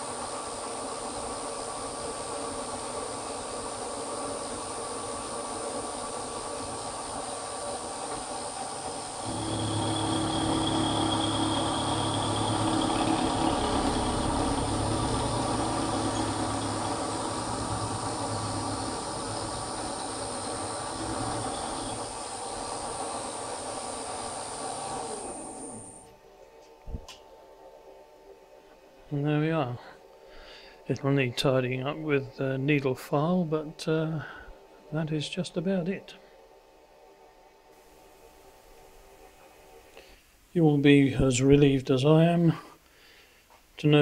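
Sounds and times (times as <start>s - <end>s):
milling machine motor whine: 0.0s - 26.2s.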